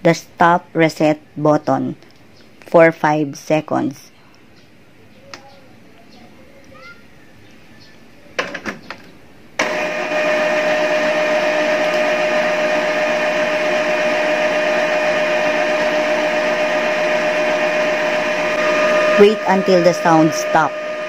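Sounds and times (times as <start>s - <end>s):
printer mechanism whirring: 9.6s - 21.0s.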